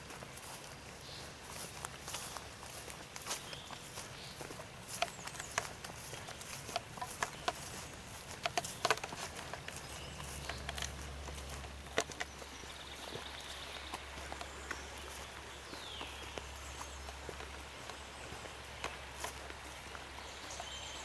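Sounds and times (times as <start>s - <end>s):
footsteps on grass: 0.0s - 21.0s.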